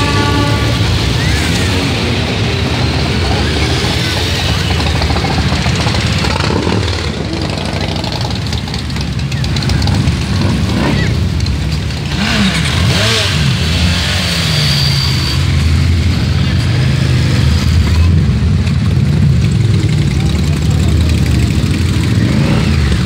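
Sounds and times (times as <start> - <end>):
motorcycles riding past slowly: 0.3 - 14.6.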